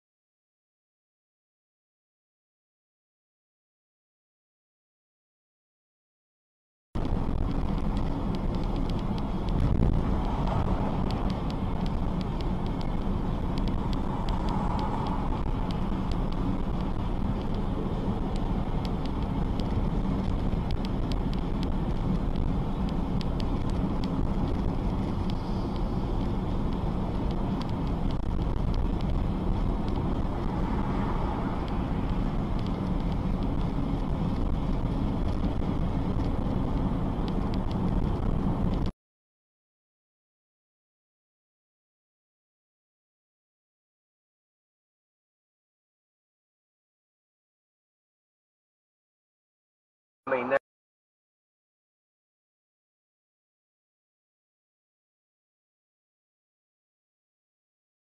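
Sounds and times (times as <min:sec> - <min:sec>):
car road and engine noise: 0:07.0 - 0:38.9, 0:50.3 - 0:50.6.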